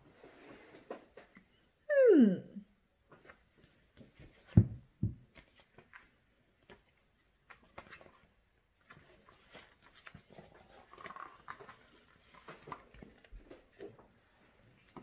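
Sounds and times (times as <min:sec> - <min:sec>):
book pages rustling: 0:03.1 - 0:04.7, 0:05.3 - 0:15.0.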